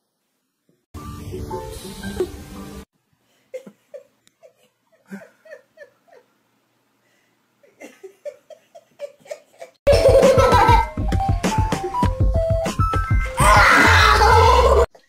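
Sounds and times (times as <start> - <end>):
person giggling quietly: 1.3 - 2.4, 3.3 - 6.4, 7.6 - 10.8.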